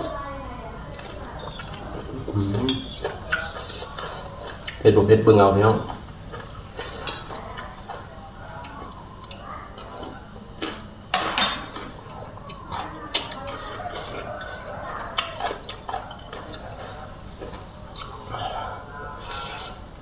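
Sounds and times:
fork scraping a plate: 19.2s - 19.9s.

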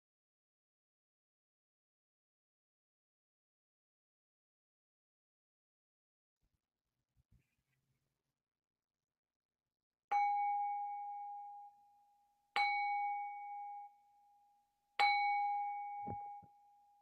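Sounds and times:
meditation bowl bell ringing: 10.1s - 12.0s, 12.6s - 17.0s.

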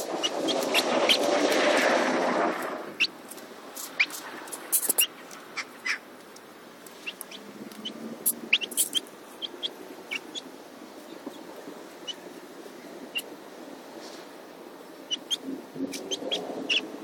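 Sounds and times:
chicks peeping: 0.0s - 1.3s, 3.9s - 6.0s, 6.9s - 12.3s, 13.1s - 13.3s, 15.1s - 17.0s.

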